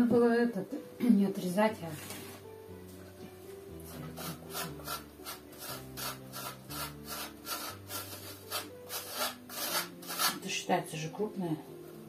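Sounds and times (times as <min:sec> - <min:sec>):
cheese grated on metal grater: 0:03.8 - 0:10.5.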